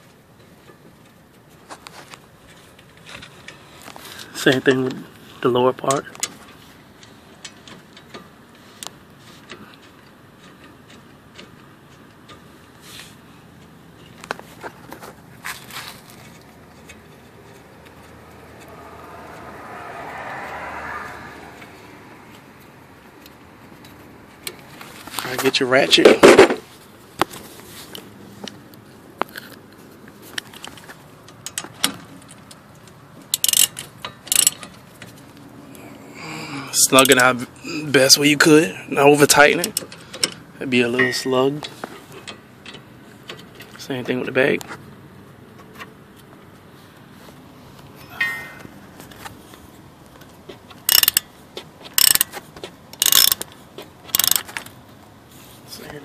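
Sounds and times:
metal tool clicks and taps: 50.9 - 51.3, 51.9 - 54.7
socket ratchet clicking: 50.9 - 51.3, 52.0 - 52.3, 53.0 - 53.5, 54.1 - 54.5.

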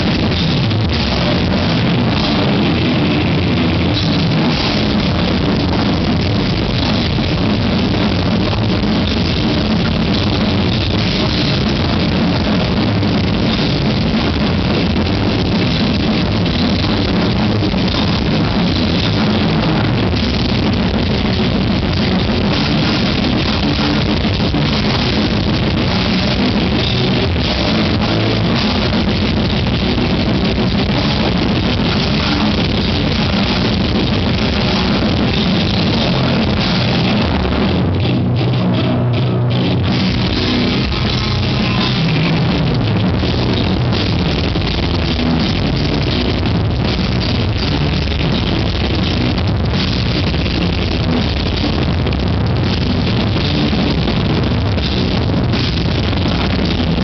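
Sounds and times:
death metal band playing: 0.0 - 57.0.

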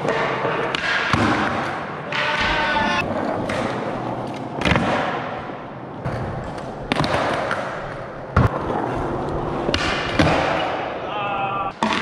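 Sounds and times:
skateboard wheels rolling on concrete: 1.6 - 10.6.

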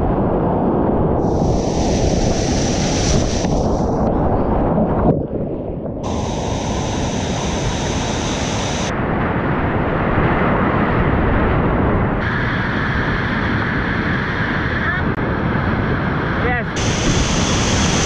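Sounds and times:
water splashing on microphone: 1.2 - 8.9.

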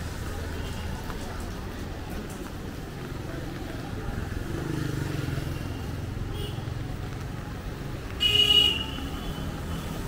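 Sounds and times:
street traffic: 0.0 - 10.0
vehicle horn toot: 8.2 - 9.4.

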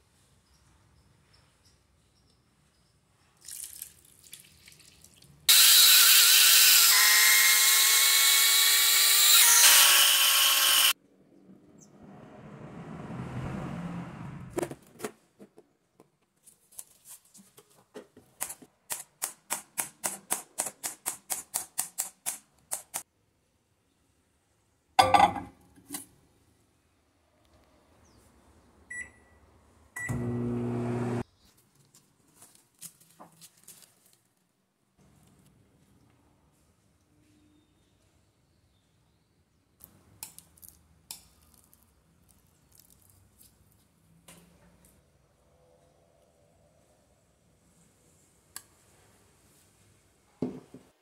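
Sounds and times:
blender motor grinding: 5.5 - 10.9, 30.1 - 31.2.

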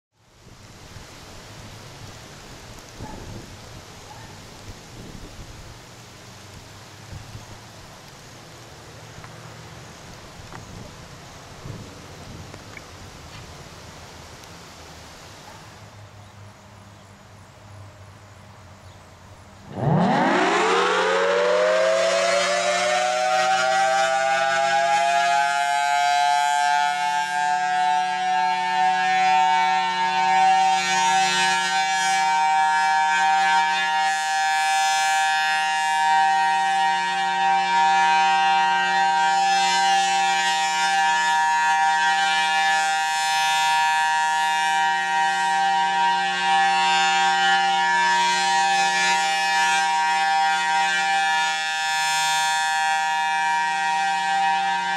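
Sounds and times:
siren winding up to steady tone: 19.7 - 28.7.

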